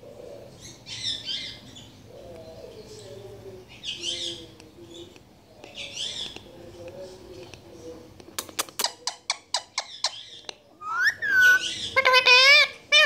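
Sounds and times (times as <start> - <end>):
parakeet chirping: 8.8 - 13.0.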